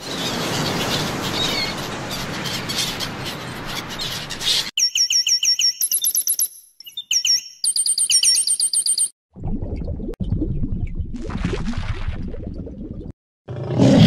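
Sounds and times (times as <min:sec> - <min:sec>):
rapid high-pitched chirps: 0:04.8 - 0:09.2.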